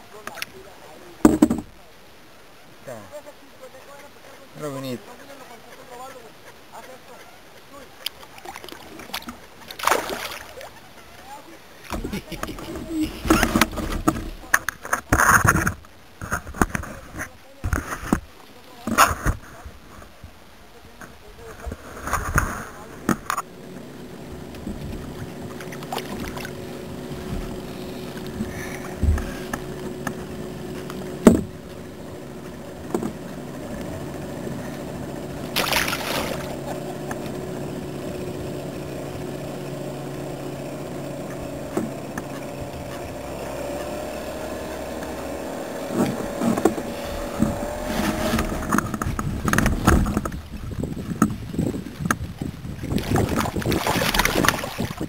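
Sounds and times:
faint steady hum: 0:00.0 - 0:55.0
fishing gear knocking and clattering: 0:11.9 - 0:16.8, 0:46.0 - 0:55.0.

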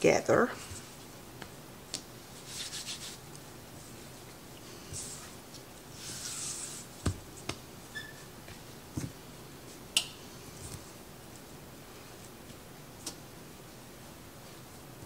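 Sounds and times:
dough rustling: 0:00.6 - 0:13.2
hands patting dough: 0:06.9 - 0:07.7.

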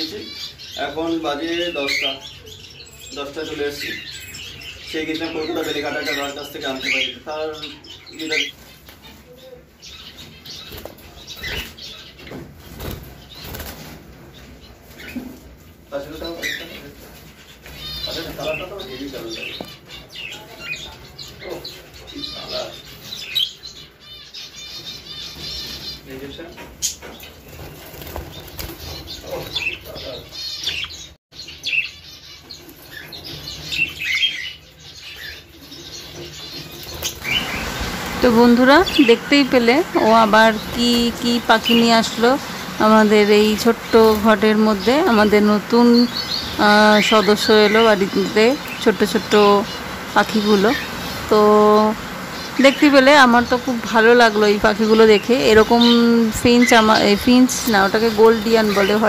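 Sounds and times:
budgerigars chirping and chattering: 0:00.0 - 0:59.0
birds flapping wings: 0:10.6 - 0:14.3, 0:27.3 - 0:29.8, 0:36.7 - 0:53.7.

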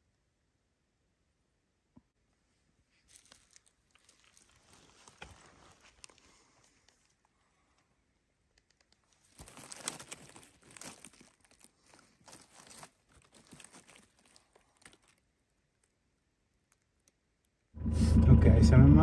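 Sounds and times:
dry leaves rustling and crackling: 0:02.9 - 0:07.0, 0:09.1 - 0:15.3
twigs snapping: 0:03.1 - 0:07.3, 0:08.5 - 0:16.0.

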